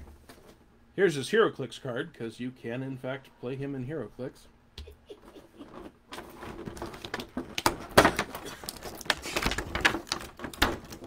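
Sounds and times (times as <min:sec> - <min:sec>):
plastic packaging crinkling: 0:06.1 - 0:11.0.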